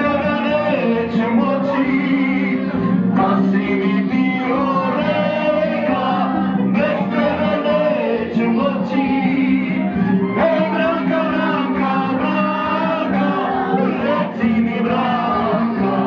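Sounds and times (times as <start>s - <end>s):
amplified party music: 0.0s - 16.0s
man singing into a microphone: 0.0s - 16.0s.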